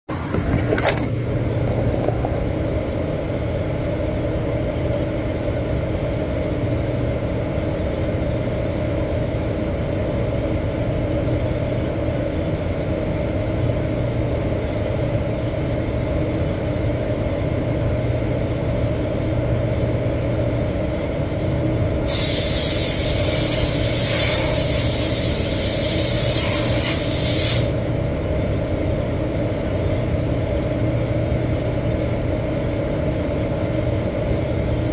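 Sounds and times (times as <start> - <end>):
ventilation drone: 0.1 - 34.9
compressed air hiss: 22.0 - 27.8.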